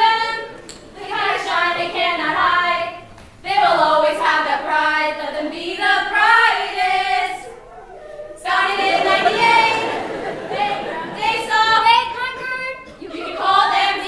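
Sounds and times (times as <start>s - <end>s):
women singing together: 0.0s - 14.0s
murmur of crowd voices: 6.9s - 14.0s.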